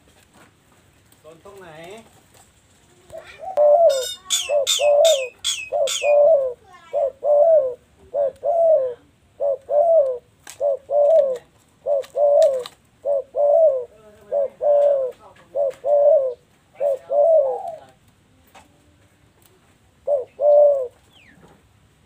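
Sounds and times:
dove cooing: 0:03.0 - 0:18.0, 0:19.9 - 0:21.4.

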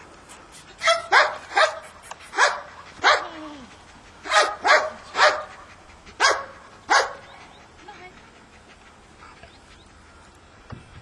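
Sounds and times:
dog barking: 0:00.8 - 0:01.8, 0:02.4 - 0:03.3, 0:04.3 - 0:05.5, 0:06.2 - 0:07.2.

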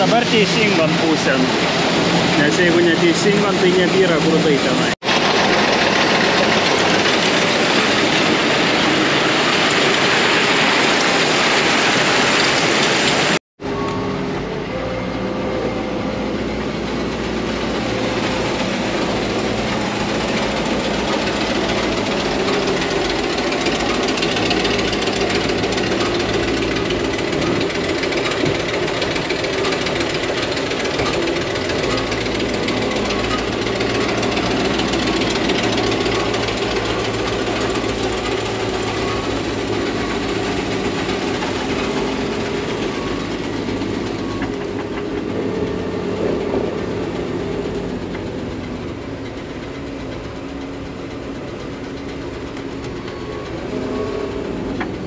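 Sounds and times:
grain rattling through conveyor: 0:00.0 - 0:13.4, 0:16.4 - 0:55.0
low motor hum: 0:12.4 - 0:55.0.

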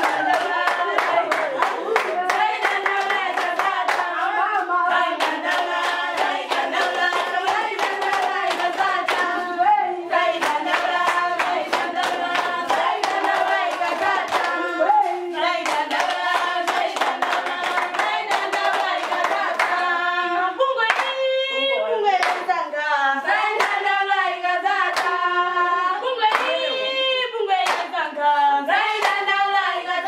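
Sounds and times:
rhythmic hand clapping: 0:00.0 - 0:20.1, 0:20.8 - 0:21.4, 0:22.1 - 0:30.0
group singing: 0:00.0 - 0:30.0.

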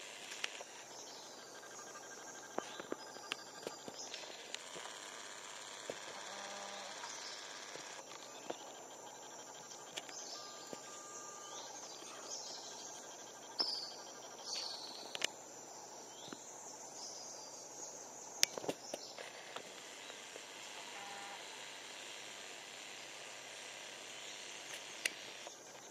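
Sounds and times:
high insect drone: 0:00.0 - 0:25.9
sharp clicks: 0:00.2 - 0:00.7, 0:24.6 - 0:25.6
bird chirps: 0:06.4 - 0:15.3.

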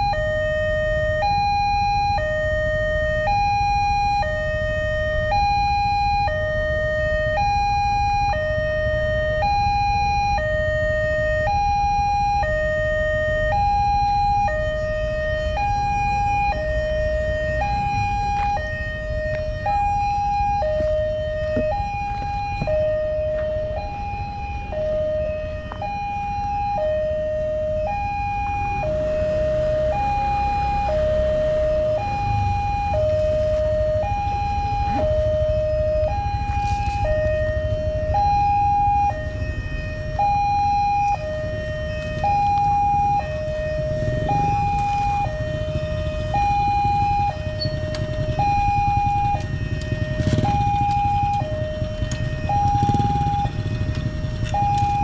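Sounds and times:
two-tone crossing alarm: 0:00.0 - 0:55.0.

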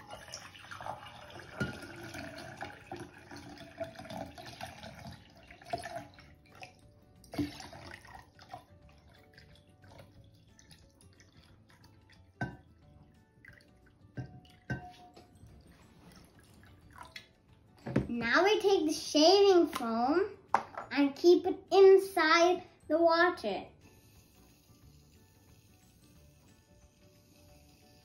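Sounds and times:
water pouring into a glass vase: 0:00.0 - 0:17.4.

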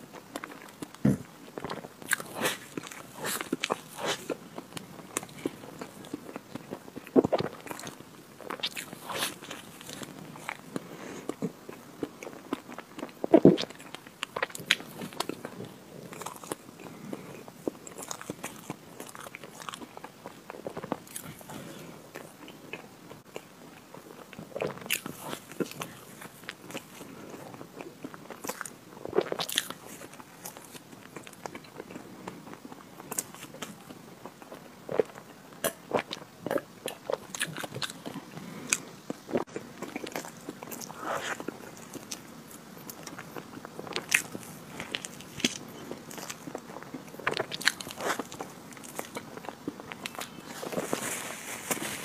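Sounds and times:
biting and chewing with mouth clicks: 0:00.1 - 0:52.0.

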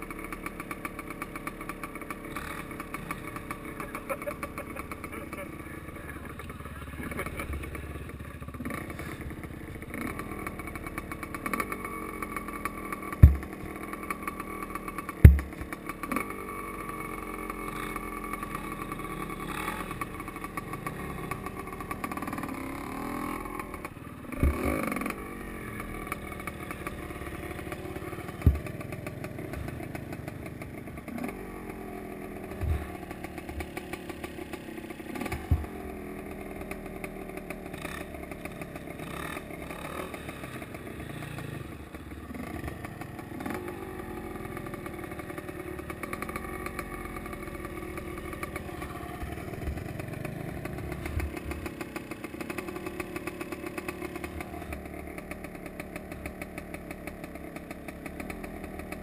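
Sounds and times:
two-stroke motorcycle engine revving: 0:00.0 - 0:59.0
sharp thumps: 0:13.2 - 0:13.8, 0:15.2 - 0:15.7, 0:28.1 - 0:30.0.

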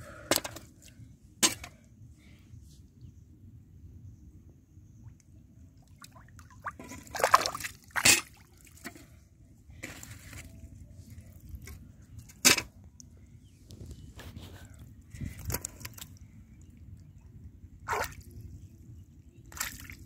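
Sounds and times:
hands splashing in muddy puddle: 0:19.5 - 0:20.0.

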